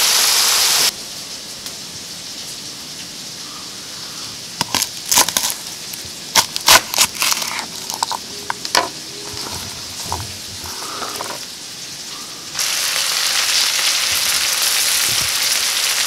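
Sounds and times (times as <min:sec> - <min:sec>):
background hiss: 0:00.0 - 0:16.0
knife crunching through garlic: 0:04.6 - 0:11.4.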